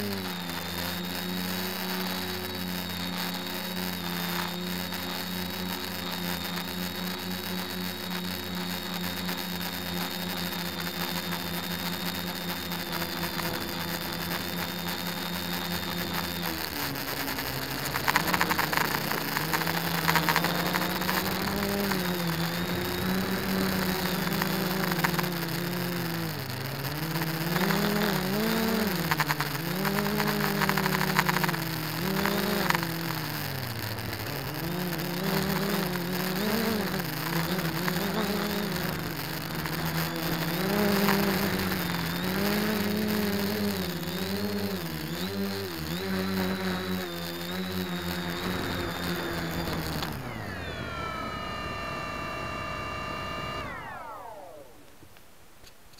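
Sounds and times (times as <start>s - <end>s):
drone propellers whining: 0.0s - 55.0s.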